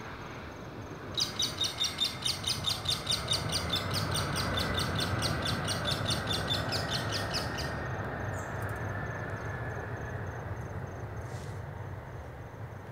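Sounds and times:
jet engines rumbling: 0:00.0 - 0:12.9
bird chirping rapidly: 0:01.2 - 0:07.8.

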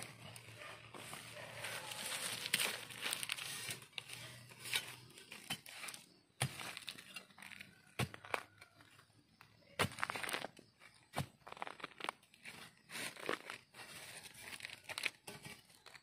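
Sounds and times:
dry grass rustling and crackling: 0:00.0 - 0:04.5, 0:11.4 - 0:16.0.

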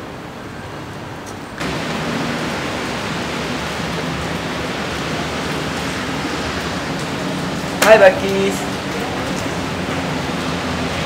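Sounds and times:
loud steady rushing noise: 0:00.0 - 0:11.0.

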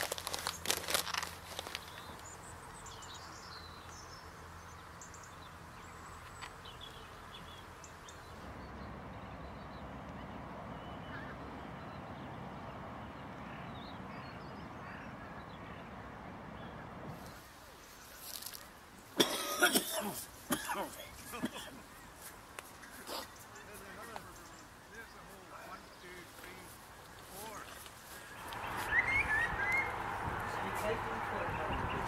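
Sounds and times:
outdoor background noise: 0:00.0 - 0:32.0
shorebirds calling: 0:00.0 - 0:32.0
wind on the microphone: 0:28.6 - 0:32.0.

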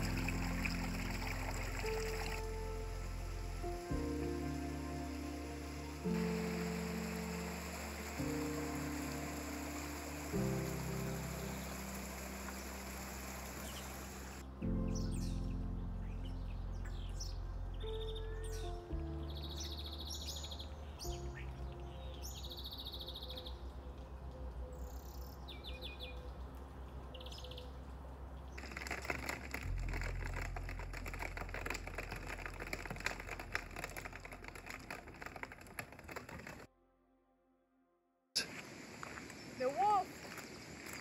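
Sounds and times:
rain pattering: 0:00.0 - 0:14.6, 0:23.5 - 0:36.7, 0:38.4 - 0:41.0
soft background music: 0:00.0 - 0:35.3
birds chirping and trilling: 0:06.2 - 0:28.6.

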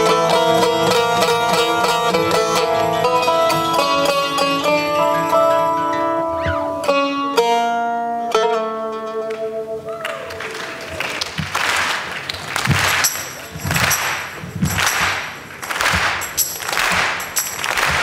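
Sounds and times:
fiddle and plucked strings: 0:00.0 - 0:11.6
audience applauding and cheering: 0:09.8 - 0:18.0.

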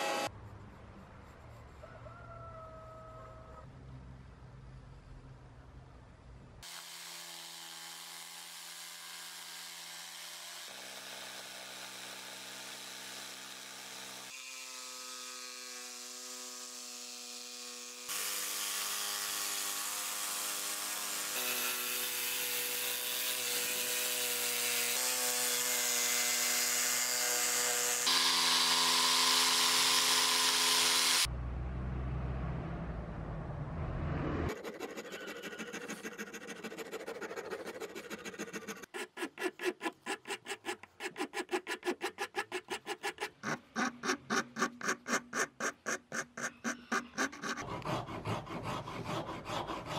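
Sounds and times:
electric jigsaw cutting wood: 0:00.0 - 0:00.3, 0:06.6 - 0:31.3, 0:34.5 - 0:49.9
low rumble: 0:31.3 - 0:34.5.

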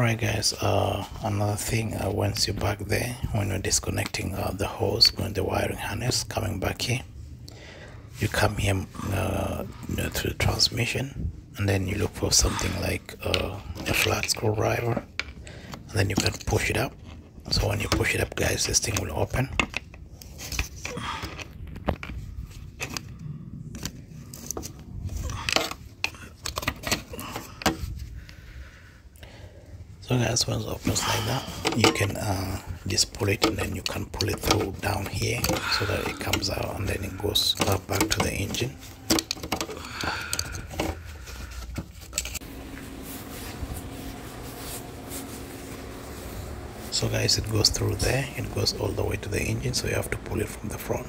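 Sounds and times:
steady low hum: 0:20.9 - 0:51.0.

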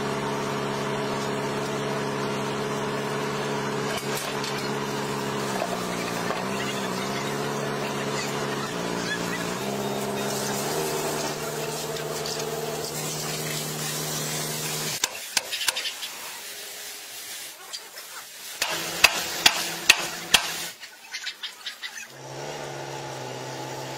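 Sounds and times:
motor drone: 0:00.0 - 0:15.1, 0:22.1 - 0:23.9
water hissing on hot iron: 0:02.6 - 0:21.0.

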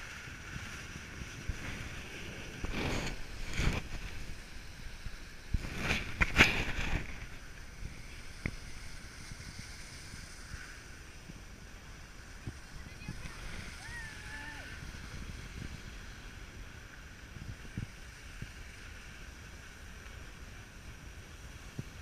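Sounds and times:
ski edges scraping: 0:00.0 - 0:16.4
skis hissing over snow: 0:00.0 - 0:22.0
wind on microphone: 0:00.0 - 0:22.0.

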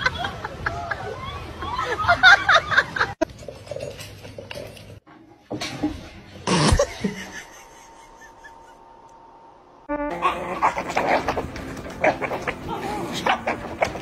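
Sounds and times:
dogs play-fighting noises: 0:10.2 - 0:14.0.

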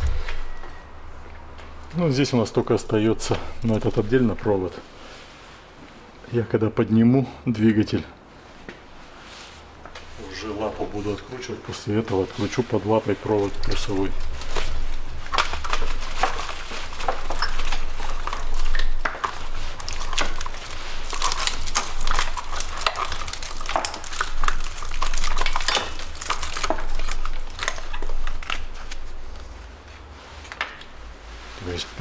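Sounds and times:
plastic wiring loom rustling: 0:01.9 - 0:04.8, 0:10.2 - 0:30.9.

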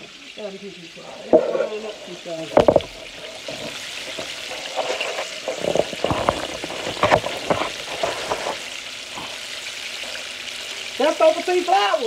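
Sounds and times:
chicken deep-frying in oil: 0:00.0 - 0:12.0.

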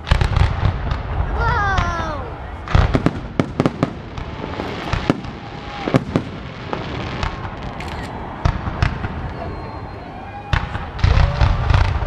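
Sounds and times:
firework bangs: 0:00.0 - 0:12.0
descending firework whistles: 0:04.4 - 0:12.0.

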